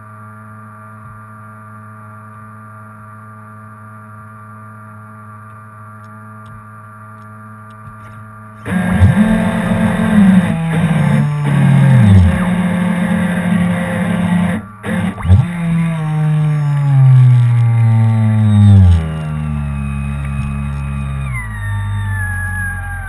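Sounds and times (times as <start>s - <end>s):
model boat motor running: 8.6s - 23.0s.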